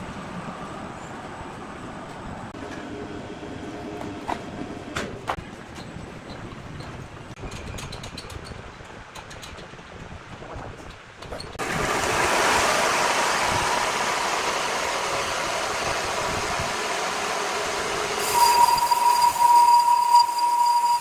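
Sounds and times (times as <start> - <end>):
sawmill rushing noise: 11.6 - 21.0
saw blade whistling whine: 17.1 - 21.0.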